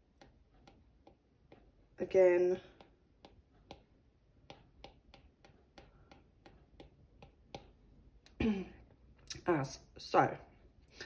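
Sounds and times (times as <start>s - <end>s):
stylus tip tapping on glass: 2.8s - 7.8s.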